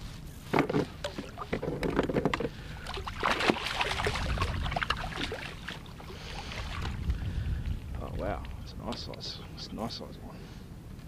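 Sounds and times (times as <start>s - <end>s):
water splashing and sloshing: 0.4s - 8.6s
net and gear knocking on hull: 0.5s - 2.5s.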